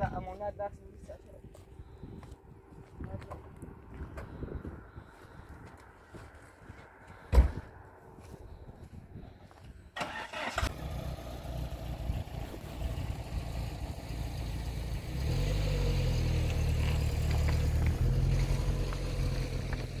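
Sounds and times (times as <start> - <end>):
car engine starting and revving: 10.0 - 20.0.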